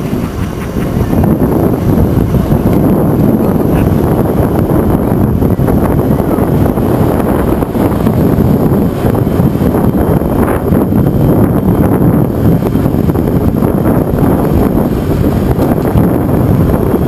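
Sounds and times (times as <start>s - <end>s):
tram wheels rolling on track: 0.0s - 17.0s
wind buffeting microphone: 0.0s - 17.0s.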